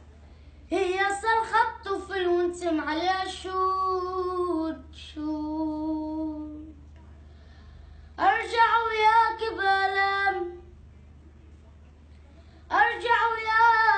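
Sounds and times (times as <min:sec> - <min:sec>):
boy singing unaccompanied: 0:00.7 - 0:06.8, 0:08.2 - 0:10.7, 0:12.7 - 0:13.9.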